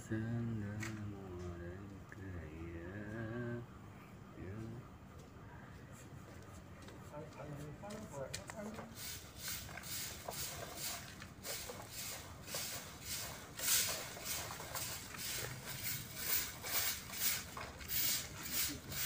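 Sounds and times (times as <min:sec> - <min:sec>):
brush scratching a wall: 0:08.8 - 0:19.0.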